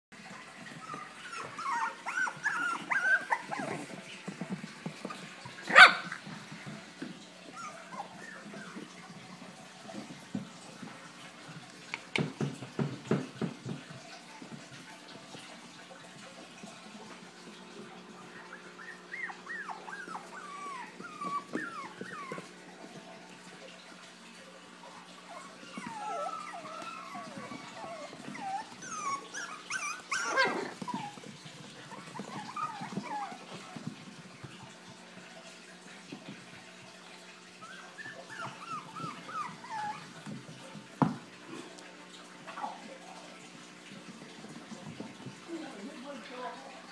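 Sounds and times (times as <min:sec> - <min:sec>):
puppies yipping: 0:00.3 - 0:06.3, 0:07.4 - 0:10.1, 0:18.2 - 0:22.7, 0:25.2 - 0:34.4, 0:37.5 - 0:40.4.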